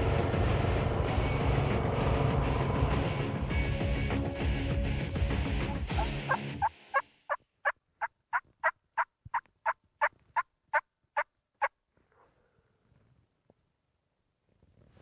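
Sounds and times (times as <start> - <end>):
turkey yelping: 5.9 - 10.1.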